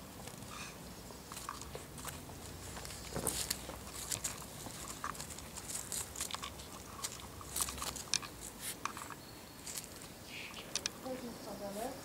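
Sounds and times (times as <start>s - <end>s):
dry leaves crunching: 1.2s - 10.2s.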